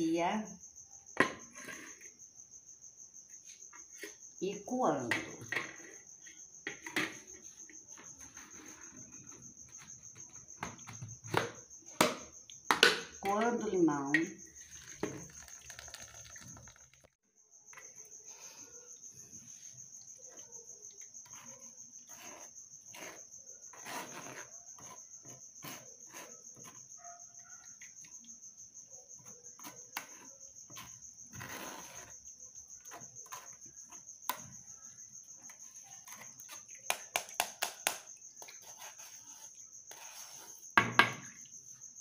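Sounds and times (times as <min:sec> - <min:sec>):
insect chirping trill: 0:00.0 - 0:42.0
metal spoon scraping sieve: 0:14.6 - 0:17.0.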